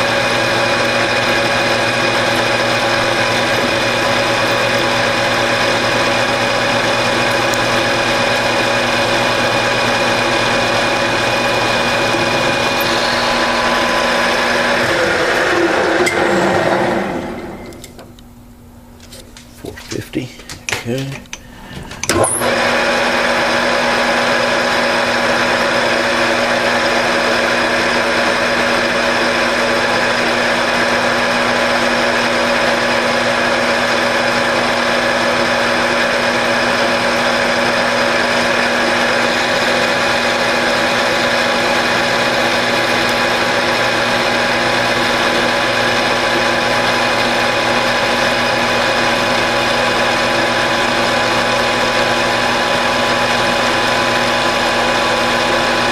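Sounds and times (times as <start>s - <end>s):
lathe tool cutting metal: 0.0s - 18.0s, 22.0s - 55.9s
metal lathe running: 0.0s - 18.2s, 20.9s - 55.9s
whining gear tones: 0.0s - 18.2s.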